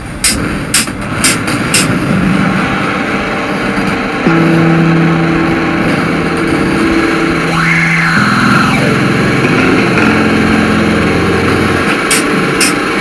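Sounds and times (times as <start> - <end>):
hissy noisy texture: 0.0 - 13.0
held low synth notes: 2.4 - 12.6
electronic synthpop: 2.6 - 13.0
high tone swooping: 2.9 - 11.1.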